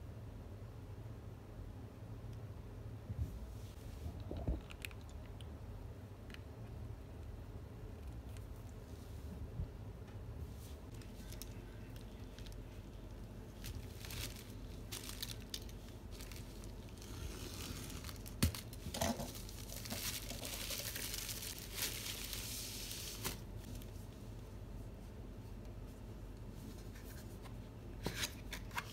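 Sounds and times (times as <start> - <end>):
plastic bag crinkling: 10.9 - 23.4.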